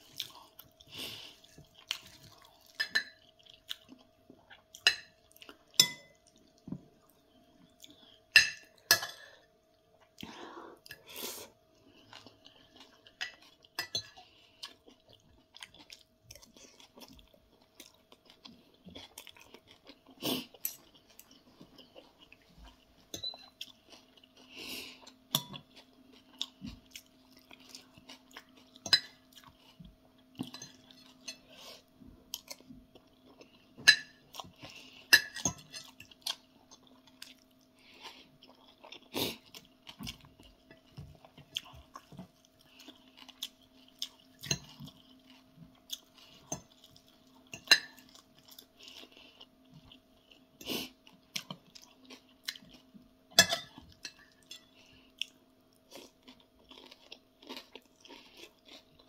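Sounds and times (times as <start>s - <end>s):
chewing: 0.0s - 8.3s, 10.0s - 59.0s
faint steady hum: 0.0s - 59.0s
cutlery clinking on a plate: 5.8s - 6.2s, 33.8s - 34.2s, 53.4s - 54.7s.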